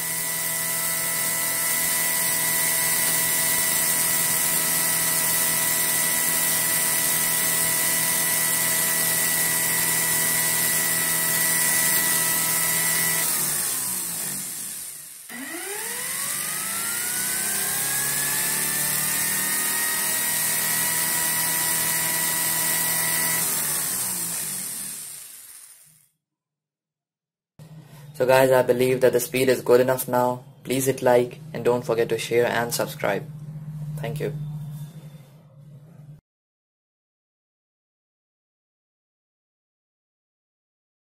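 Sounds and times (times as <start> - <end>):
blender motor whining: 0.0 - 26.1.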